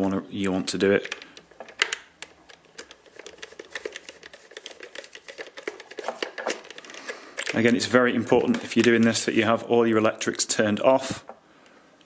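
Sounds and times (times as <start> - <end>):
screwdriver clicking and scraping: 1.0 - 7.6.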